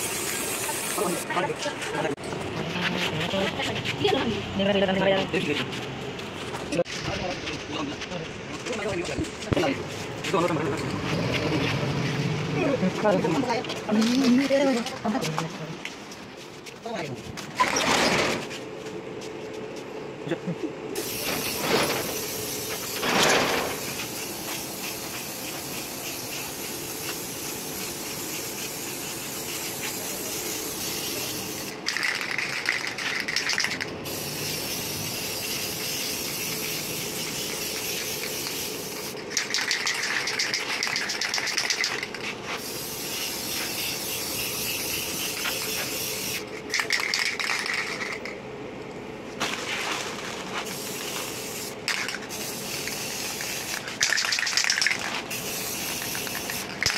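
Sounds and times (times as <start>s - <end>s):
paint spray hissing on metal: 0.0s - 1.3s, 21.0s - 48.2s, 50.6s - 56.9s.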